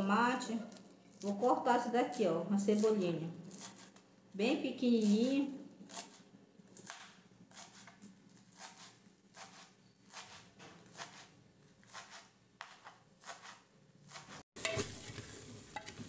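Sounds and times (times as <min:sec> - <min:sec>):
knife chopping on plastic board: 0:06.8 - 0:14.8.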